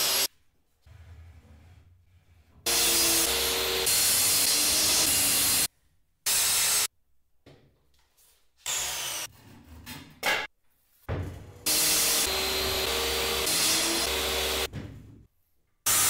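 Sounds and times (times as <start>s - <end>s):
circular saw cutting wood: 0.9s - 5.7s, 11.6s - 14.7s.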